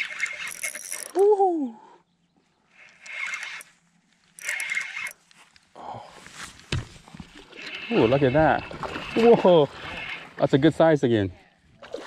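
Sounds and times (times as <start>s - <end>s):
fishing reel buzzing: 0.0s - 1.3s, 2.7s - 3.7s, 4.3s - 5.2s, 7.5s - 10.4s
person shouting woohoo: 1.1s - 1.8s.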